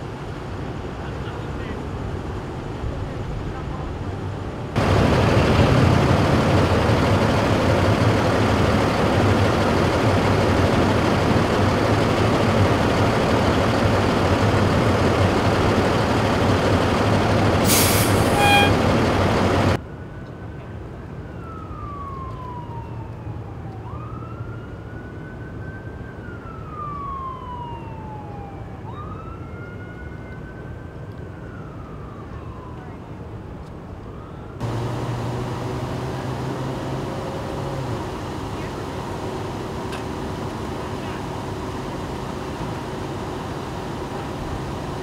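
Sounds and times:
fire engine idling: 4.8s - 19.8s, 34.6s - 45.0s
emergency siren wailing: 4.8s - 45.0s.

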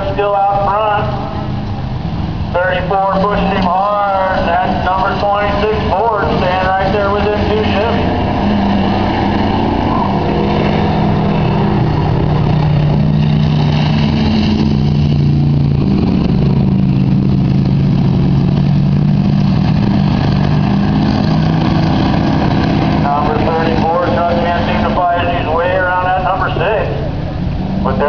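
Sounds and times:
racing truck engines: 0.0s - 28.0s.

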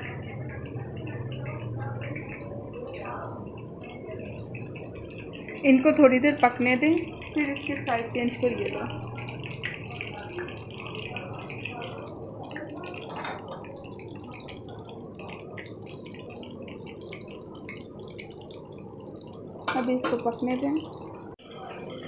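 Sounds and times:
food sizzling in hot oil: 0.2s - 21.4s.

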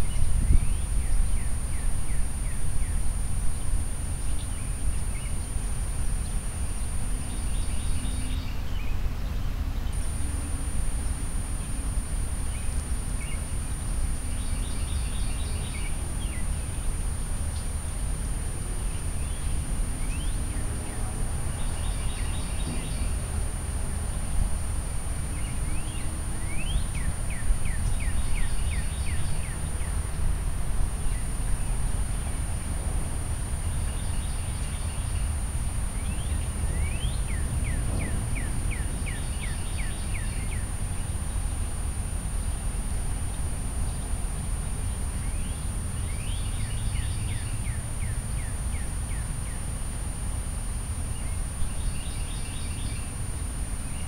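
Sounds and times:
steady low rumble: 0.0s - 54.0s
higher trilled birdsong: 25.2s - 30.2s.

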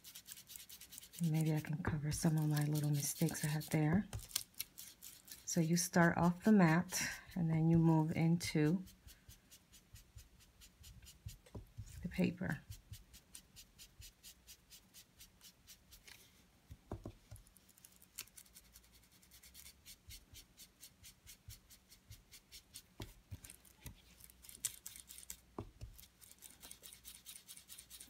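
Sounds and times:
ink tool rubbing on cardstock: 0.0s - 4.0s.

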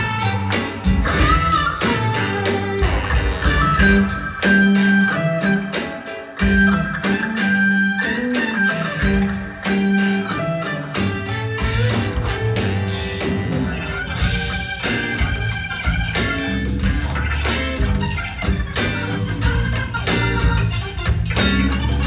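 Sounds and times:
bass guitar: 0.0s - 22.0s
drum kit beat: 0.0s - 22.0s
electric guitar: 0.0s - 22.0s.

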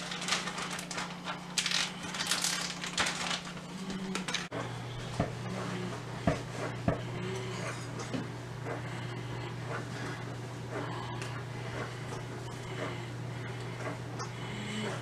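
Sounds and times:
plastic bag crinkling: 0.0s - 4.5s
steady low hum: 0.0s - 15.0s.

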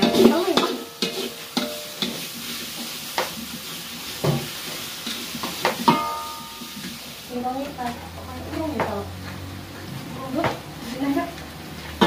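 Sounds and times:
spatula scraping and knocking pan: 0.0s - 3.6s, 4.2s - 7.0s
food sizzling in a wok: 0.0s - 12.0s.

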